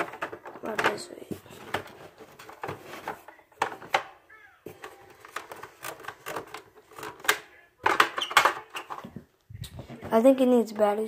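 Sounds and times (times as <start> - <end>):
plastic toy clicks and knocks: 0.0 - 1.1, 4.8 - 9.0.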